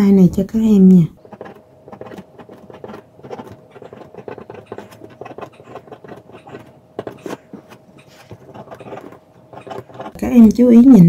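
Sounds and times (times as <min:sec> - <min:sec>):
faint steady hum: 0:00.0 - 0:11.0
pen scratching on paper: 0:01.2 - 0:10.4.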